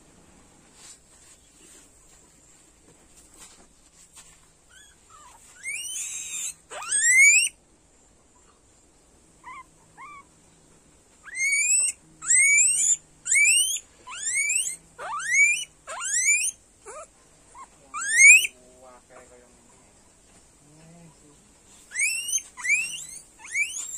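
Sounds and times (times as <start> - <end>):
guinea pig chirps: 4.7 - 7.6, 9.4 - 10.3, 11.2 - 18.6, 21.8 - 23.9
guinea pig squealing: 4.7 - 7.6, 9.4 - 10.3, 11.2 - 18.6, 21.9 - 23.9.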